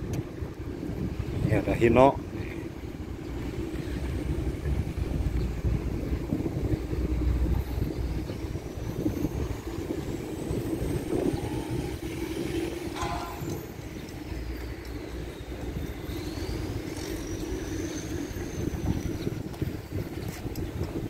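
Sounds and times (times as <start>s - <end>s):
short higher-pitched sound: 13.0s - 13.8s.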